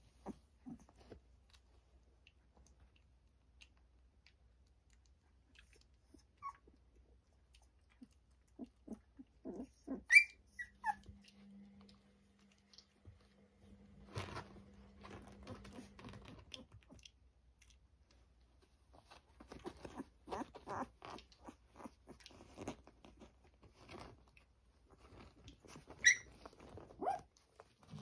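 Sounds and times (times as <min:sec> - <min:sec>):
puppies suckling: 0:00.0 - 0:11.5, 0:15.0 - 0:28.0
puppy squeaking: 0:06.1 - 0:06.7, 0:08.9 - 0:11.2, 0:19.6 - 0:22.0, 0:25.9 - 0:27.3.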